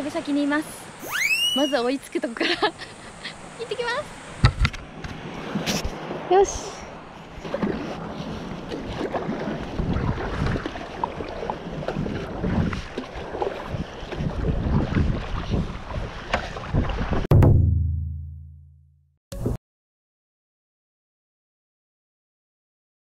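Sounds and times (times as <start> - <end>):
paddle strokes splashing: 4.8 - 17.3
wind buffeting microphone: 7.3 - 17.3
low ringing sound effect: 17.4 - 19.0.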